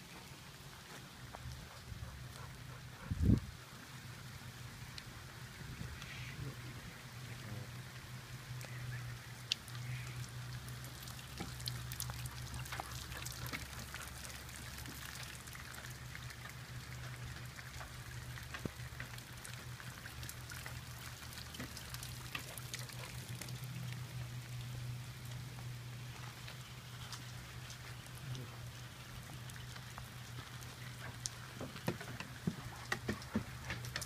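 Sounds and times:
rain hiss: 0:00.0 - 0:34.0
raindrops tapping on hard surface: 0:10.5 - 0:34.0.

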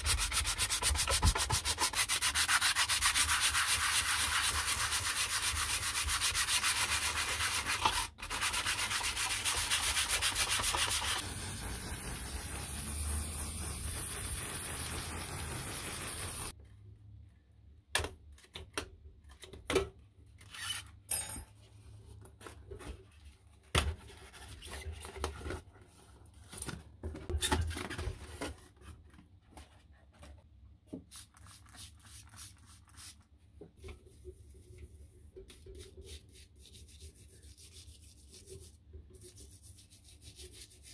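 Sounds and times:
hand sanding sheet metal: 0:00.0 - 0:16.5.

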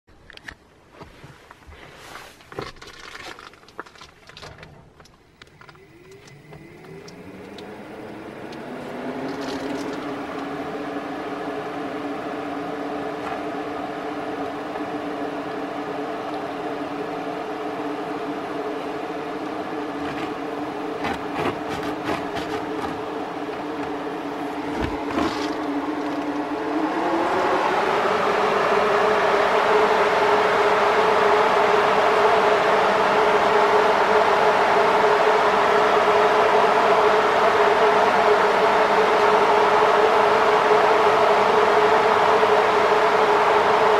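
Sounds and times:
clicks: 0:04.3 - 0:10.5
fan motor hum: 0:04.8 - 0:43.9.

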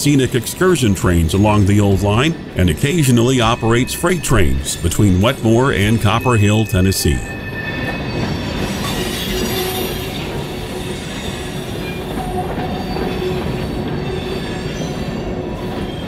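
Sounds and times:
train wheels rumbling on rail: 0:07.0 - 0:16.0.

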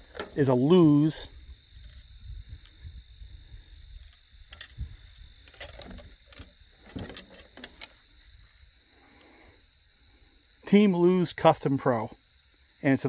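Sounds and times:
crickets chirping: 0:00.0 - 0:13.0
fishing reel clicks: 0:04.0 - 0:06.5.

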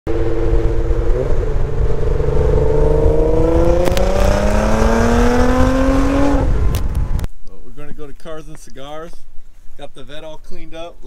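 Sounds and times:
car engine accelerating hard: 0:00.1 - 0:07.3
wind and road noise rumble: 0:00.1 - 0:11.0.

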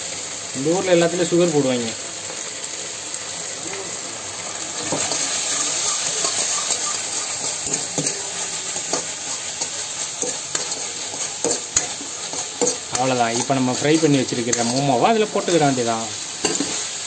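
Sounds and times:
frying sizzle: 0:00.0 - 0:17.0
ladle scraping wok: 0:04.7 - 0:17.0
ladle clinking against pan: 0:16.4 - 0:16.8.

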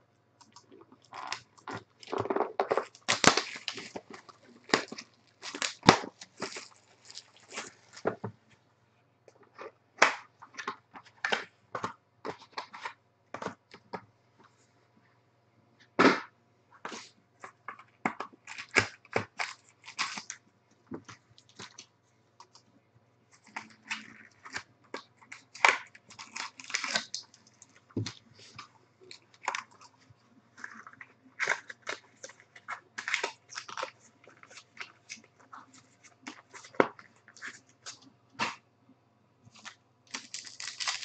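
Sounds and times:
foil packs crinkling: 0:01.0 - 0:08.2, 0:18.4 - 0:20.4, 0:23.4 - 0:29.9, 0:30.6 - 0:38.0, 0:39.6 - 0:41.0.

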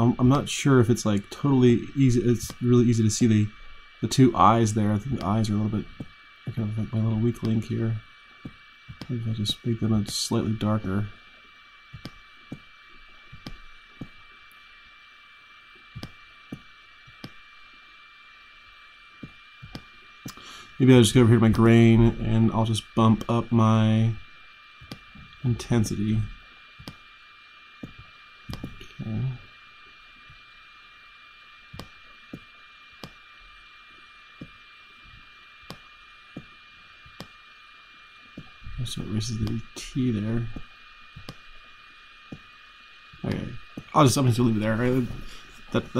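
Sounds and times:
faint hiss: 0:00.0 - 0:45.9
computer mouse clicking: 0:02.4 - 0:02.6, 0:11.9 - 0:12.7, 0:13.3 - 0:14.2, 0:15.9 - 0:17.4, 0:19.2 - 0:20.4, 0:24.8 - 0:25.4, 0:26.8 - 0:27.0, 0:27.8 - 0:28.9, 0:31.7 - 0:33.2, 0:34.4 - 0:37.4, 0:41.2 - 0:41.4.

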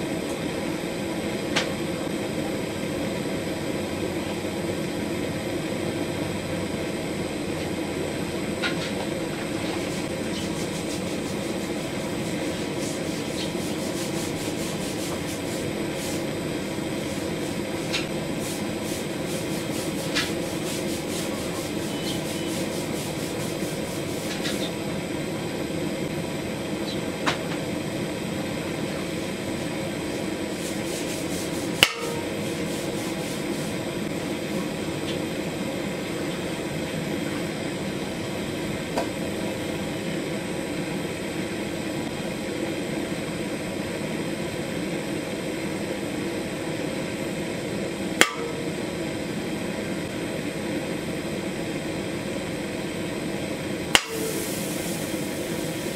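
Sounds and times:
gas torch hissing: 0:00.0 - 0:36.8, 0:53.6 - 0:55.9.

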